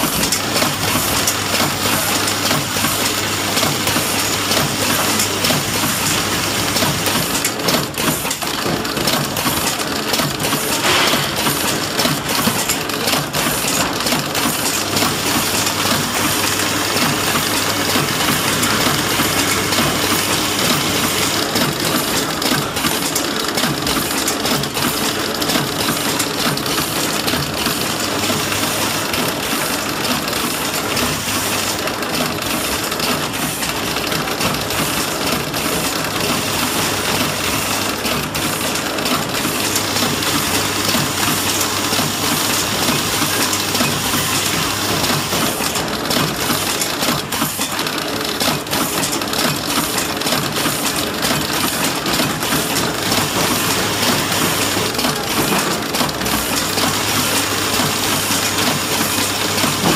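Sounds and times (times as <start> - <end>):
machine clatter and clicking: 0.0 - 59.9.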